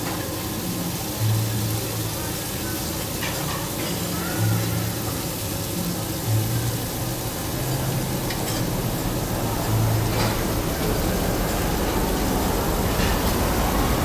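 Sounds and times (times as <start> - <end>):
meat sizzling on a griddle: 0.0 - 14.0
steady low hum: 6.3 - 14.0.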